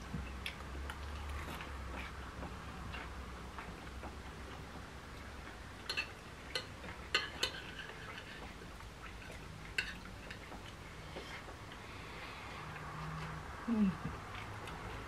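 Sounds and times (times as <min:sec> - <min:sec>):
cutlery clinking on a plate: 0:05.8 - 0:08.5.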